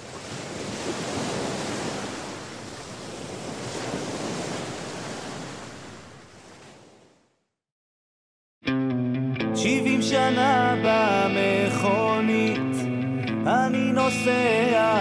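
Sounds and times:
sea surf washing: 0.0 - 6.8.

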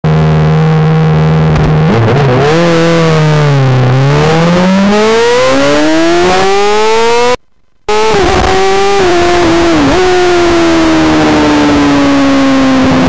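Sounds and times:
motorcycle engine revving: 0.1 - 13.0.

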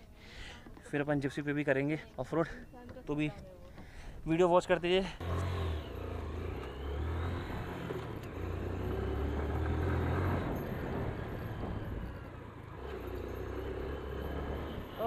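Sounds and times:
motorcycle engine under load: 5.2 - 15.0.

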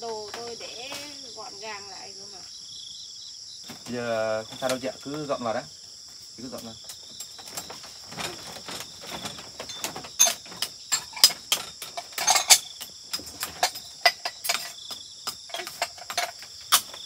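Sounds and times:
insect chirring: 0.0 - 17.0
household things clattering: 6.4 - 17.0.

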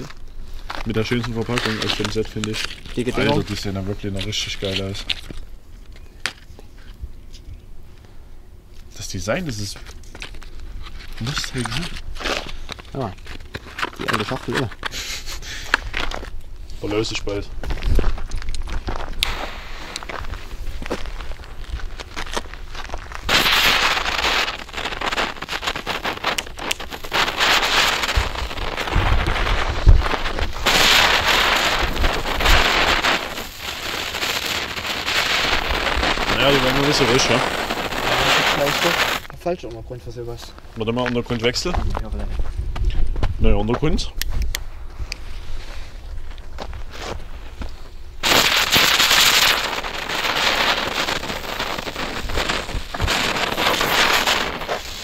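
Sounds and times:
firework crackling and hissing: 0.0 - 5.5, 9.0 - 39.3, 44.3 - 55.0
wind buffeting microphone: 25.8 - 39.2, 41.5 - 46.9.

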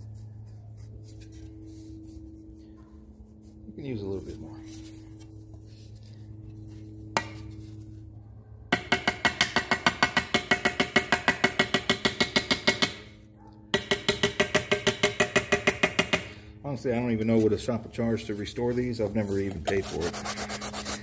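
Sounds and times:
low steady hum: 0.0 - 21.0
small hammer tapping metal: 8.7 - 13.1, 13.7 - 16.4.

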